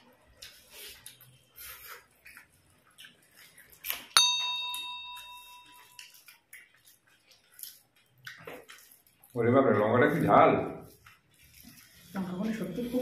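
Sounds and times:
hands mixing rice: 0.0s - 13.0s
mouths chewing: 0.3s - 4.2s, 4.9s - 13.0s
notification bell ding: 4.2s - 6.0s.

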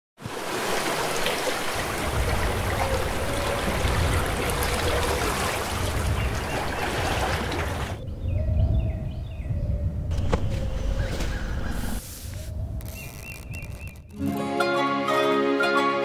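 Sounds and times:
sea water rushing and splashing: 0.2s - 8.0s.

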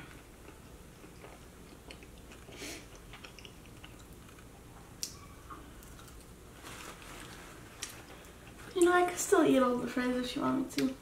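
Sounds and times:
person chewing: 0.0s - 5.2s.

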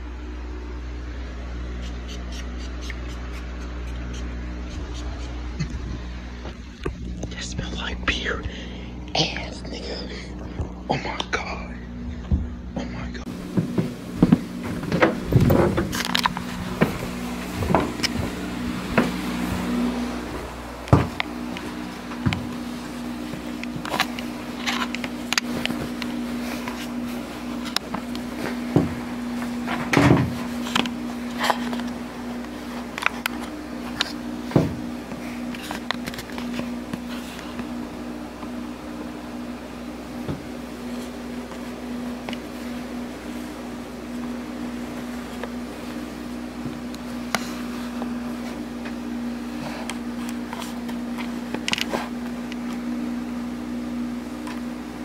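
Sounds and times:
steady low hum: 0.0s - 55.0s
clicks and rustles: 20.8s - 37.8s.

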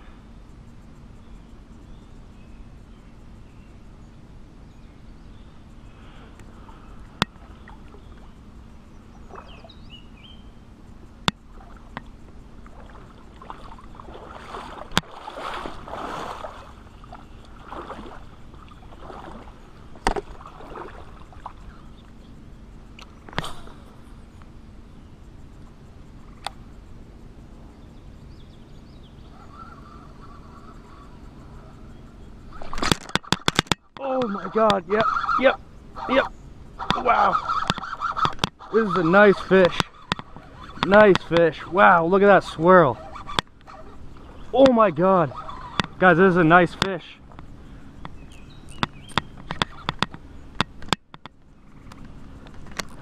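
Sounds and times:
water sloshing around wading legs: 9.2s - 9.7s, 11.5s - 22.1s
sharp ticks: 10.9s - 14.1s, 25.2s - 27.6s, 32.4s - 43.8s, 44.5s - 53.0s.

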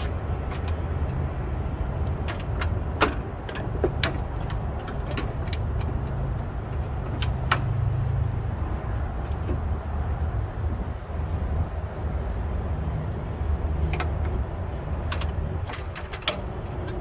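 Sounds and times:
clicks of metal and plastic parts: 0.0s - 1.2s, 2.0s - 7.7s, 13.8s - 17.0s.

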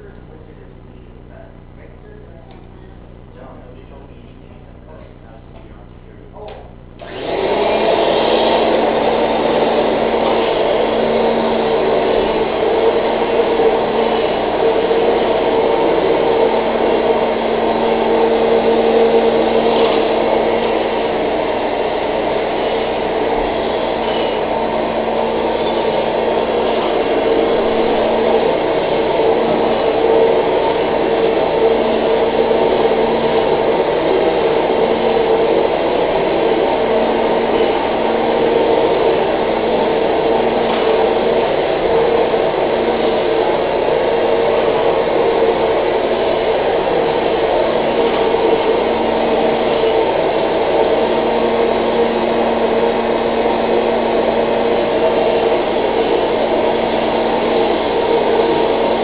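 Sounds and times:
vacuum cleaner running: 0.0s - 59.0s.

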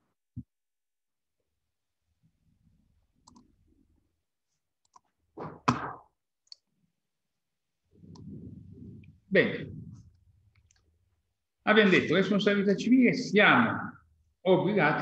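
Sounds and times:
keyboard and mouse clicks: 3.2s - 3.5s, 4.8s - 5.1s.

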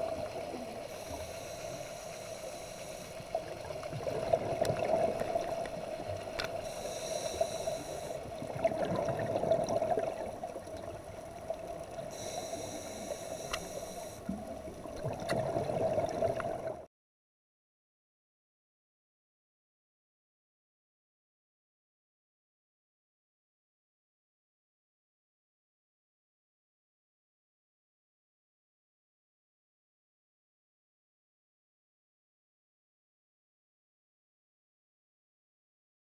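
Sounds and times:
exhaled bubbles gurgling: 0.0s - 1.8s, 2.5s - 16.9s
steady hum: 0.0s - 3.9s, 5.0s - 8.5s, 9.8s - 15.0s
regulator inhale hiss: 0.2s - 3.8s, 6.4s - 8.4s, 11.9s - 14.4s.

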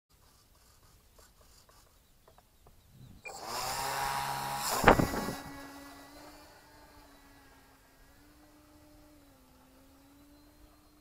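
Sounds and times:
small propeller motor running: 3.0s - 11.0s
sharp thump: 4.7s - 5.5s.

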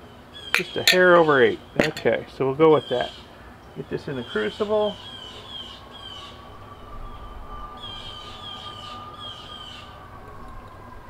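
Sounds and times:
distant siren wailing: 3.8s - 11.0s
bird singing high notes: 4.2s - 10.6s.

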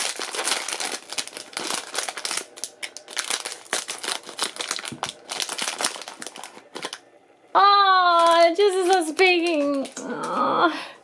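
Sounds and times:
foil wrapper crinkling: 0.0s - 7.0s, 8.0s - 10.5s.

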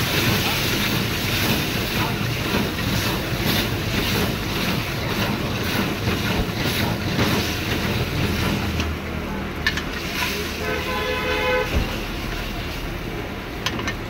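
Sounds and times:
gas burner roar: 0.0s - 14.0s
gravy sizzling and bubbling: 0.0s - 14.0s
ladle scraping a wok: 9.7s - 12.9s.

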